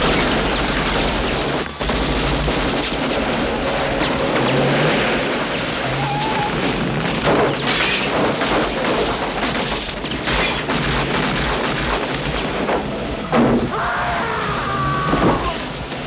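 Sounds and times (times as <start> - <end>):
vehicle driving over rough ground: 0.0 - 11.3
booming crashes: 0.0 - 14.1
music: 0.0 - 16.0.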